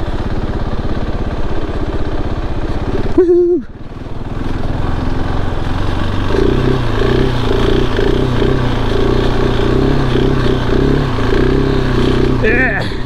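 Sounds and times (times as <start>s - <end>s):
motorcycle engine under throttle: 0.0s - 13.0s.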